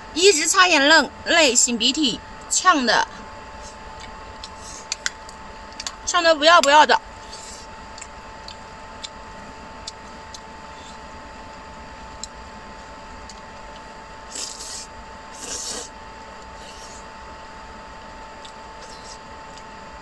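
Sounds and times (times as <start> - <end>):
slurping noodles: 14.3 - 15.9, 16.6 - 17.0, 18.8 - 19.3.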